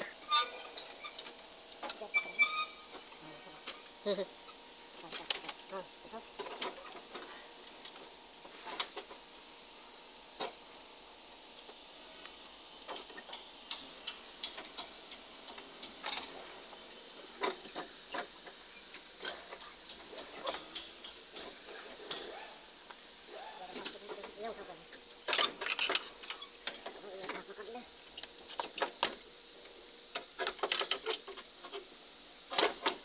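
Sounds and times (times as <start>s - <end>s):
steady hiss: 2.7s - 27.0s.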